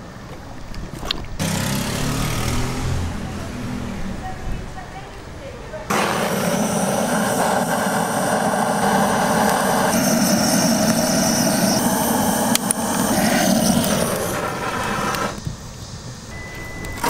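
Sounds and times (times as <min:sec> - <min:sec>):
blowtorch hissing: 0:01.4 - 0:03.4, 0:05.4 - 0:16.4.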